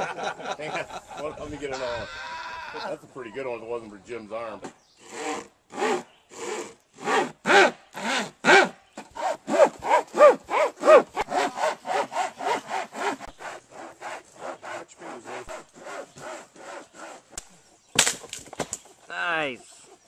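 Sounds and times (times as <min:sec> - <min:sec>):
crosscut saw cutting log: 0:05.0 - 0:18.3.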